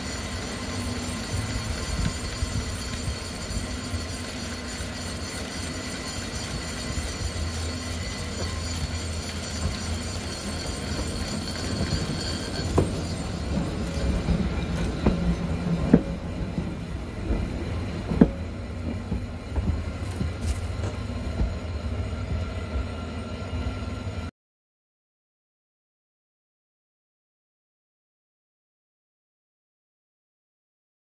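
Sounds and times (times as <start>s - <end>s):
funicular car rumbling on rails: 0.0s - 24.3s.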